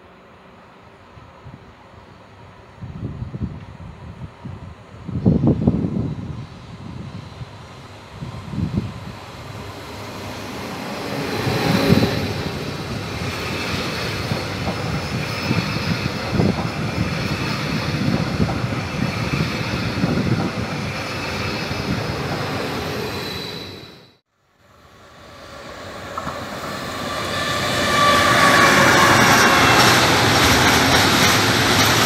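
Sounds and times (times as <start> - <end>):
electric train running past: 0.0 - 32.0.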